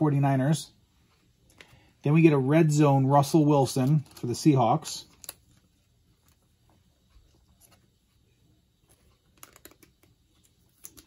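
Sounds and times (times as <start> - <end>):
trading cards clicking and rustling: 3.6 - 5.6, 8.9 - 11.0.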